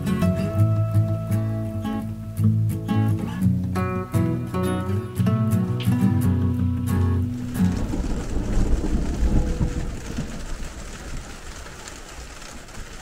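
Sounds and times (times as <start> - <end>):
thunder rumbling: 6.3 - 13.0
rain on a vehicle roof: 6.8 - 13.0.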